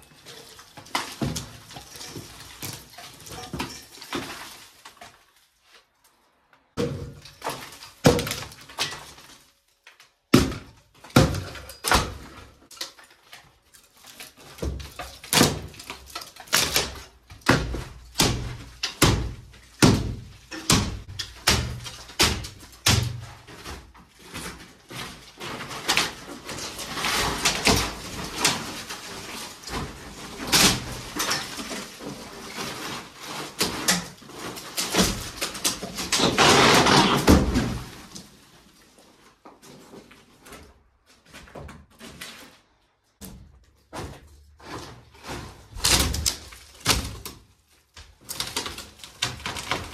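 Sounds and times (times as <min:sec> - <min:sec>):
falling debris clattering: 0:00.0 - 0:05.5, 0:11.2 - 0:39.0
boards splintering and cracking: 0:00.0 - 0:05.6, 0:06.8 - 0:42.5, 0:43.2 - 0:49.9.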